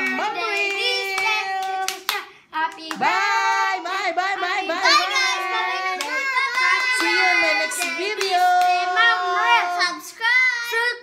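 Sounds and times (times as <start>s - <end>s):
woman singing: 0.0s - 10.1s
children singing: 2.9s - 11.0s.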